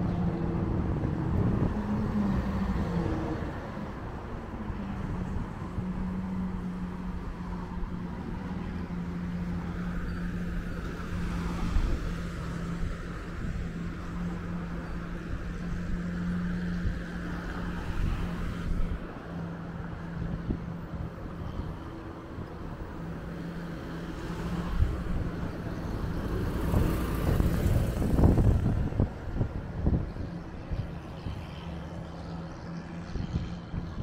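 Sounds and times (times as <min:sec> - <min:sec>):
cars driving past: 0:00.0 - 0:34.0
low steady traffic hum: 0:00.0 - 0:34.0.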